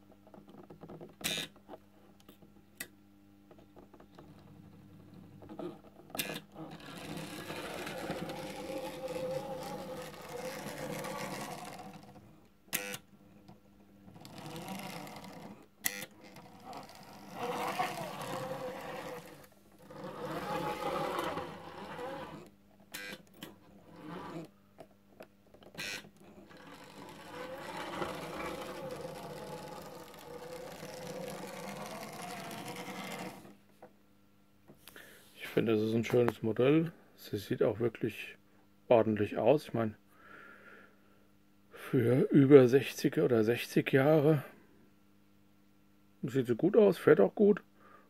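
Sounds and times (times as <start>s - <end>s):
model train motor whirring: 6.2s - 13.0s, 14.2s - 23.2s, 23.9s - 24.5s, 25.8s - 33.6s.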